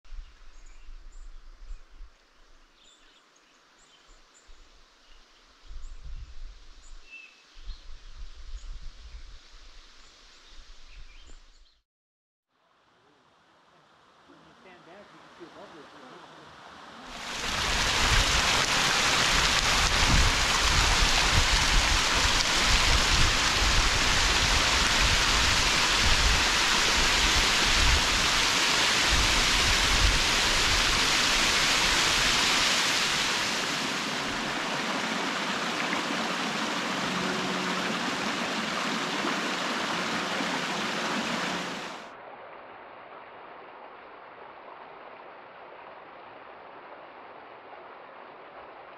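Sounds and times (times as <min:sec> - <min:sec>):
creek running over rocks: 0:13.0 - 0:48.9
waterfall splashing onto rocks: 0:17.1 - 0:42.1.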